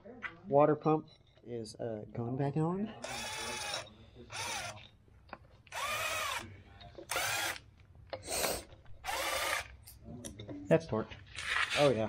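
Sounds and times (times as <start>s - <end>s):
power driver motor whine: 5.7s - 6.4s, 7.1s - 7.6s.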